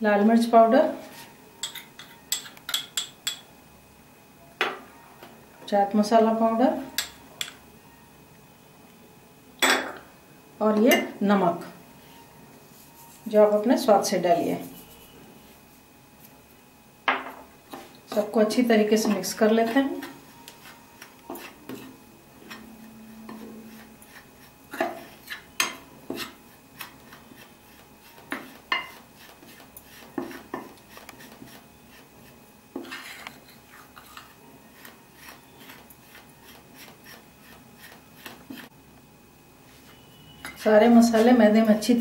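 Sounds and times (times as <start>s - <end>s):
spoon scraping dry mix: 17.7s - 38.8s, 39.7s - 41.5s.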